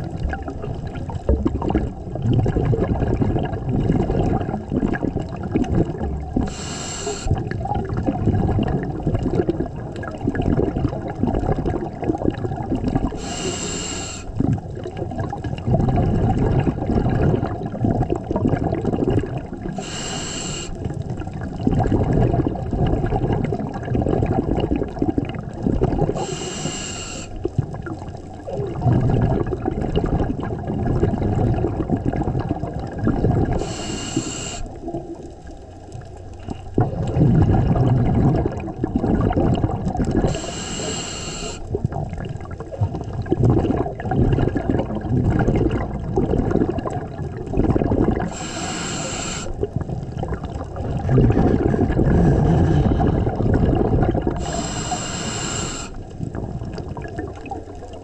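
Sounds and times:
exhaled bubbles rumbling: 0:00.0 - 0:58.0
hissing regulator inhalations: 0:06.4 - 0:07.4, 0:13.2 - 0:14.3, 0:19.8 - 0:20.8, 0:26.2 - 0:27.4, 0:33.6 - 0:34.7, 0:40.2 - 0:41.7, 0:48.2 - 0:49.6, 0:54.4 - 0:56.1.

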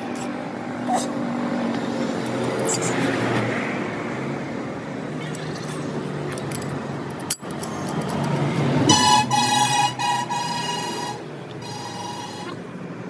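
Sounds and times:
street traffic noise: 0:00.0 - 0:13.0
vehicle horn: 0:08.9 - 0:12.6.

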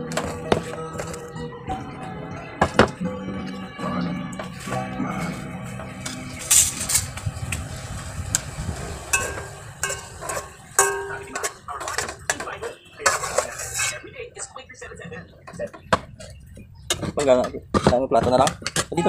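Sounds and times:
metal utensil scraping a plate: 0:06.0 - 0:07.2, 0:09.1 - 0:14.1.

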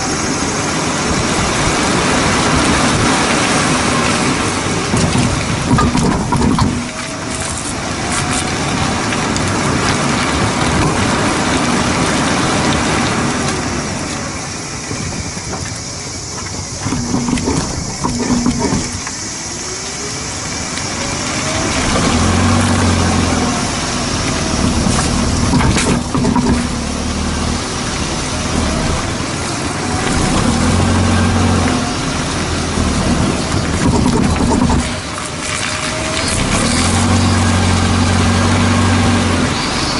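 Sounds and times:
tyre and road noise: 0:00.0 - 0:39.9
wind on microphone: 0:00.0 - 0:39.9
low thumps: 0:04.9 - 0:07.2, 0:16.7 - 0:19.2, 0:21.8 - 0:29.2.

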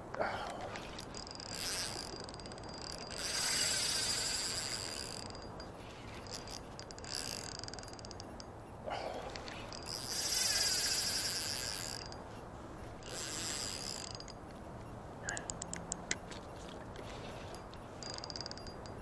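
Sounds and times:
fishing reel ratcheting and whirring: 0:00.4 - 0:08.5, 0:09.2 - 0:12.2, 0:13.0 - 0:14.6, 0:17.0 - 0:19.0.

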